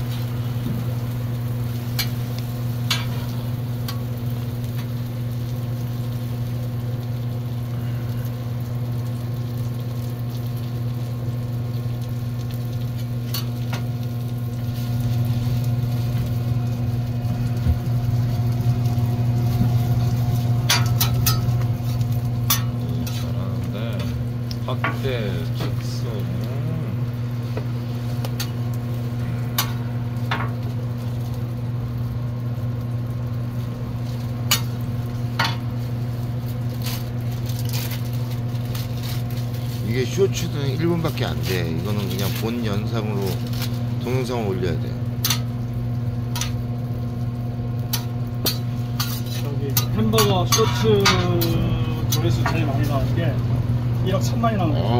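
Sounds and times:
food sizzling on a griddle: 0.0 - 54.9
steady low hum: 0.0 - 54.9
metal spatula scraping griddle: 48.5 - 51.2.

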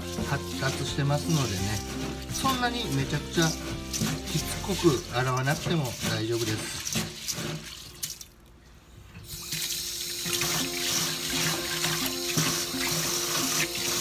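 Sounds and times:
hands rubbing wet rice: 0.0 - 8.3
tap water running into metal bowl: 0.0 - 8.3, 9.2 - 14.0.

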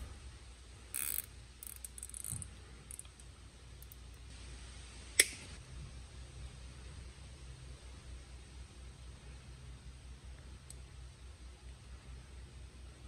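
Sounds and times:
zip tie ratchet zipping: 0.9 - 3.0
sharp click: 5.2 - 5.4.

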